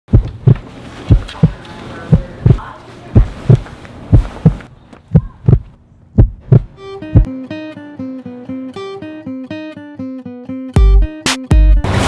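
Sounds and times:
heartbeat thumps: 0:00.1 - 0:07.3.

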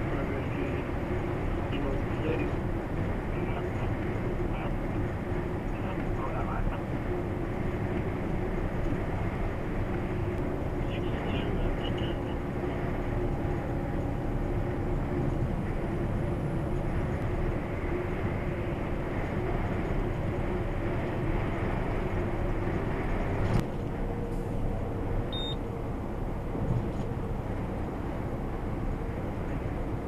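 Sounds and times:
truck engine and tyres droning: 0:00.0 - 0:30.0
short high beep: 0:25.3 - 0:25.6.

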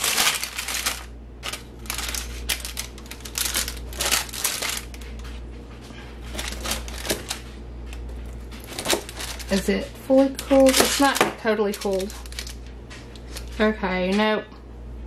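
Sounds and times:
knife crunching granola: 0:00.0 - 0:05.0, 0:06.3 - 0:07.4, 0:08.0 - 0:09.7
paper crinkling: 0:00.0 - 0:13.6.

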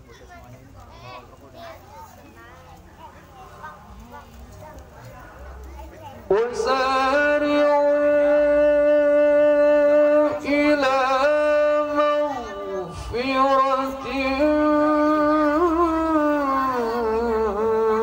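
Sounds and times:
man reciting melodically: 0:06.2 - 0:18.0.

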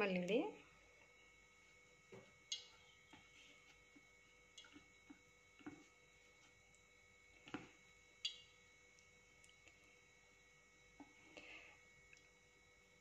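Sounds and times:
faint ticks and clicks: 0:02.5 - 0:03.2.

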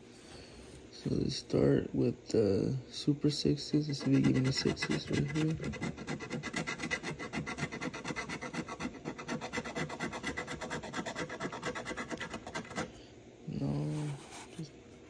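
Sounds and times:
coin scraping scratch card: 0:03.8 - 0:13.0.

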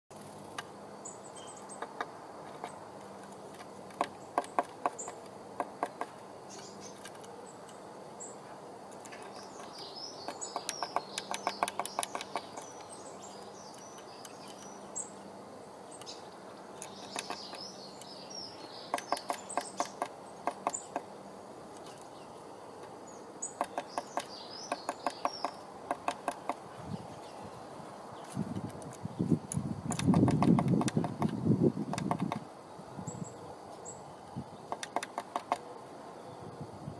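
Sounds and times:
bird pecking on wood: 0:01.8 - 0:06.2, 0:09.0 - 0:12.9, 0:16.8 - 0:17.7, 0:18.9 - 0:21.1, 0:23.5 - 0:26.7, 0:28.4 - 0:32.4, 0:34.7 - 0:35.6
high bird chirps: 0:09.1 - 0:15.2, 0:15.8 - 0:21.1, 0:23.0 - 0:27.6.

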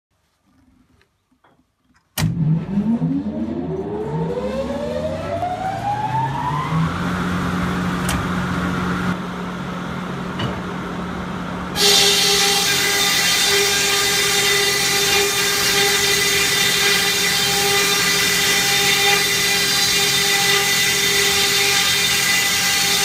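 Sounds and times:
sawmill at work: 0:02.2 - 0:23.0
motor and saw whining: 0:11.8 - 0:23.0.

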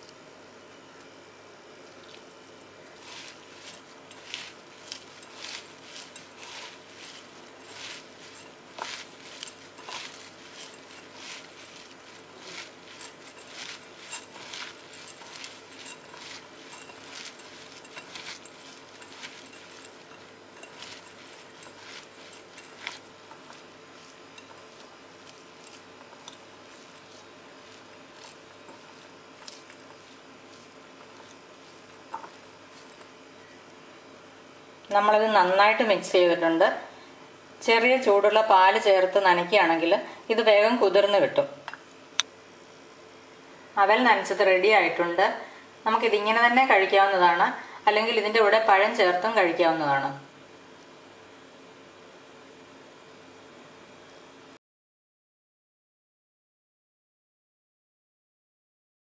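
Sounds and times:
faint steady hum: 0:00.0 - 0:54.6
rice flakes crackling and rustling: 0:01.8 - 0:34.3.

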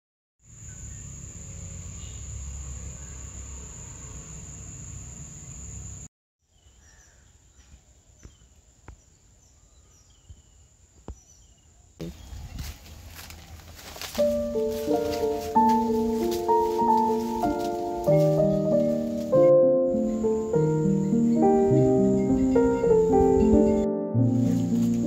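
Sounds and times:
high insect drone: 0:00.4 - 0:06.1, 0:12.0 - 0:25.0
bird chirps: 0:02.0 - 0:03.4, 0:05.4 - 0:12.6, 0:14.2 - 0:25.0.

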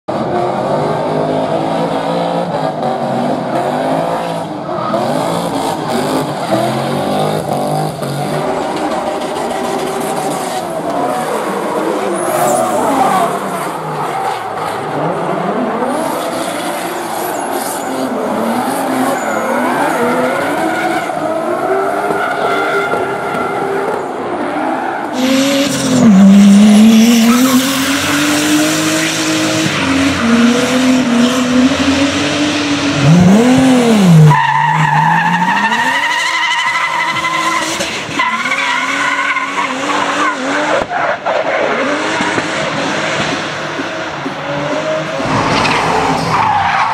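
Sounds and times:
car engine revving: 0:00.1 - 0:46.9
tyres squealing and skidding: 0:03.9 - 0:46.9.

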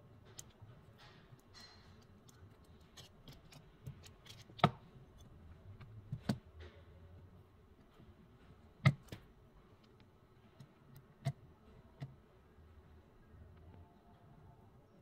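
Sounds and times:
tools clicking and tapping on mat: 0:00.2 - 0:04.9.

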